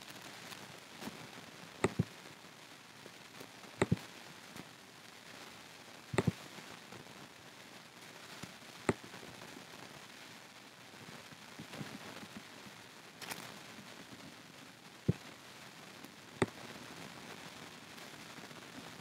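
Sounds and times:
faint hiss: 0.0 - 19.0
computer mouse clicking: 1.8 - 2.1, 6.2 - 6.4.

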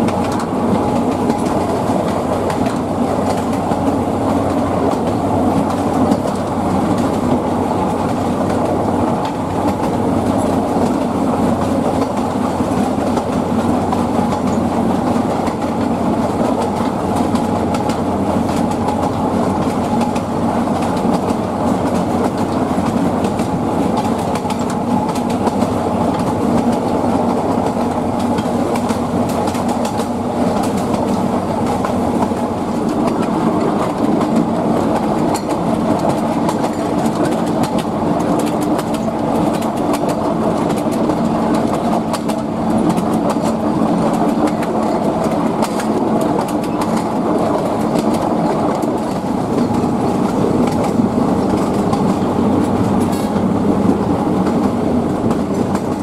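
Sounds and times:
train rumbling along track: 0.0 - 56.0
wheel clicks over rail joints: 0.0 - 56.0.

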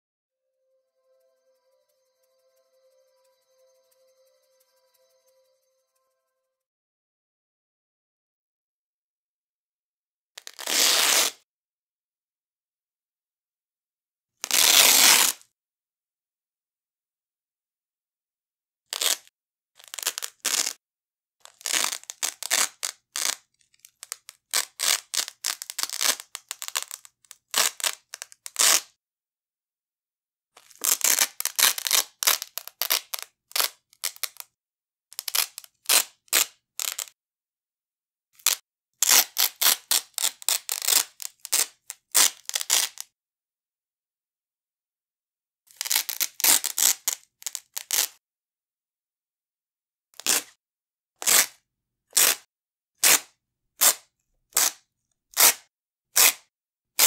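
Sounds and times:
velcro strap ripping: 10.4 - 11.4, 35.2 - 37.1, 38.4 - 43.1, 50.2 - 50.5, 51.2 - 51.6, 52.2 - 52.4, 53.0 - 54.0, 54.6 - 55.6, 56.2 - 56.4.

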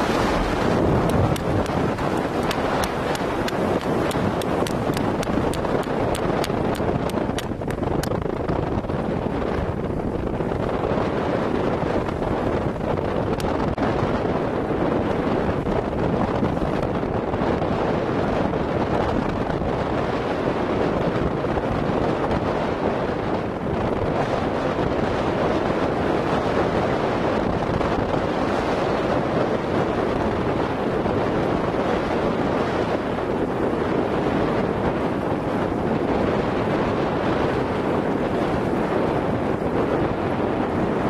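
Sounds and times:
choppy waves washing: 0.0 - 41.0
wind buffeting microphone: 0.0 - 41.0.

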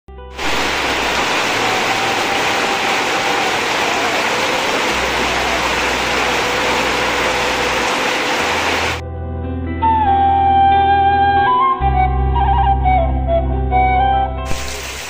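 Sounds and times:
heavy rain on a tile roof: 0.4 - 9.0, 14.5 - 15.0.

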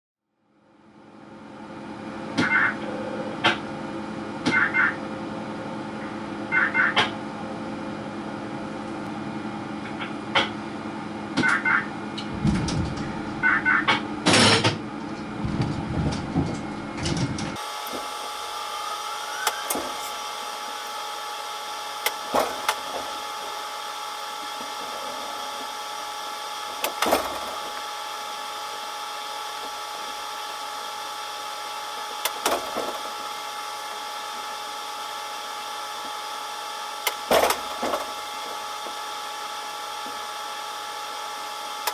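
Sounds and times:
subway train cab hum: 1.2 - 30.4
high steady whine: 11.4 - 41.9.

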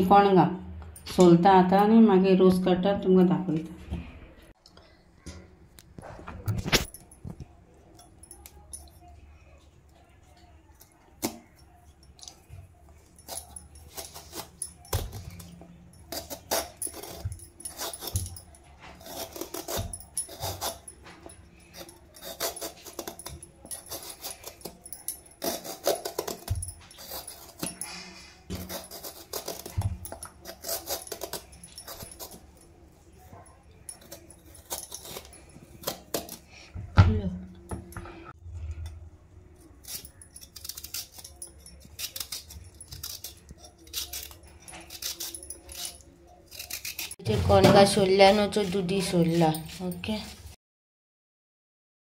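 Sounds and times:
peeler scraping gourd skin: 13.1 - 32.6, 33.9 - 36.6, 39.6 - 50.0.

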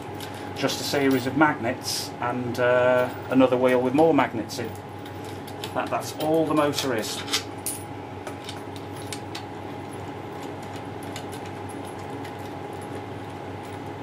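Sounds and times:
steady background hum: 0.0 - 14.0.

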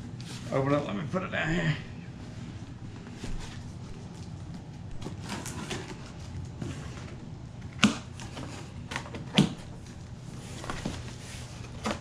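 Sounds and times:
cardboard crinkling and scraping: 3.0 - 7.3, 8.1 - 12.0.

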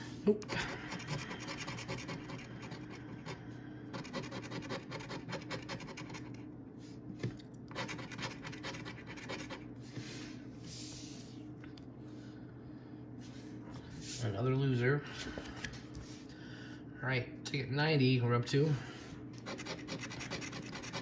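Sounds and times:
scratching lottery ticket: 0.8 - 3.4, 4.0 - 6.4, 7.7 - 9.7, 19.4 - 21.0.

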